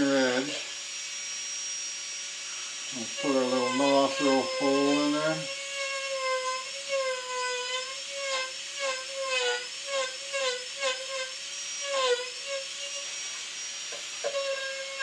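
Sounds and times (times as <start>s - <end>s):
burr grinding wood: 0.0s - 15.0s
rotary tool high whine: 0.0s - 15.0s.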